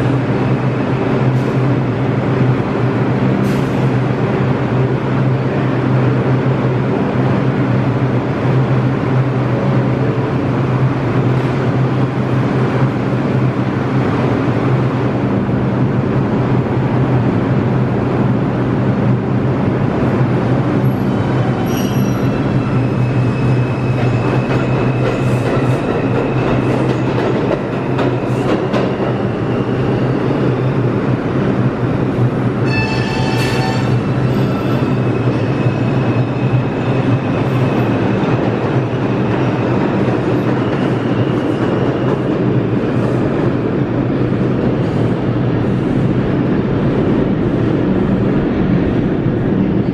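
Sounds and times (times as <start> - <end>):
subway train hum and rumble: 0.0 - 49.9
high thin wheel squeal: 21.6 - 23.8.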